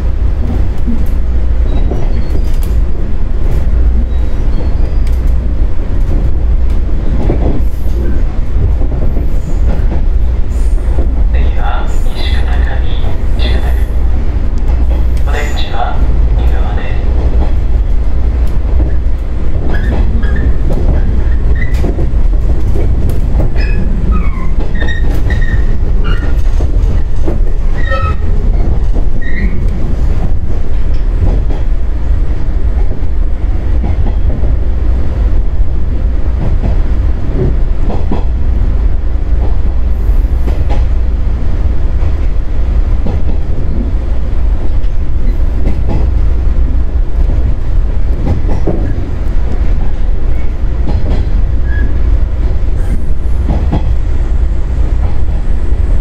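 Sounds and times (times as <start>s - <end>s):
train rumbling on rails: 0.0s - 56.0s
high wheel squeals: 23.6s - 26.4s, 27.8s - 28.3s.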